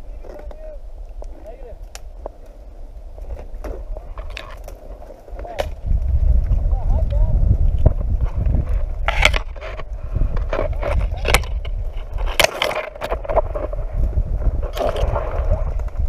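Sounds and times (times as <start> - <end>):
branches scraping against camera: 0.0 - 16.0
low microphone rumble: 0.0 - 16.0
sharp snaps of branches: 1.2 - 2.4.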